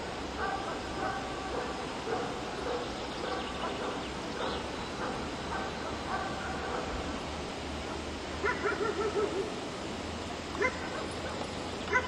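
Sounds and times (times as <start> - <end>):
dog barking: 0.4 - 6.9, 8.4 - 9.5, 10.6 - 11.1.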